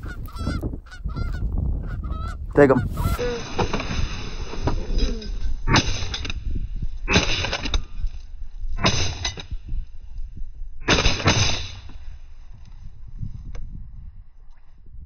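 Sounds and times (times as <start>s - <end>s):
shotgun blasts: 10.9s - 11.9s.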